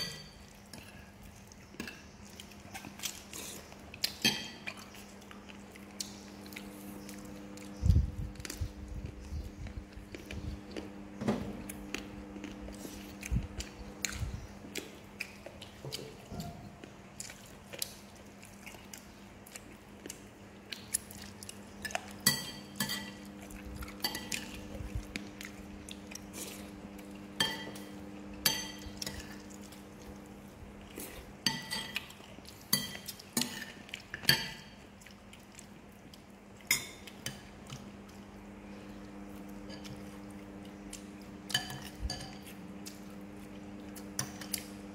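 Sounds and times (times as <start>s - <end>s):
spoons clinking on ceramic bowls: 0.0s - 0.4s, 22.2s - 23.3s, 27.4s - 29.4s, 41.5s - 42.6s
steady low hum: 0.0s - 44.9s.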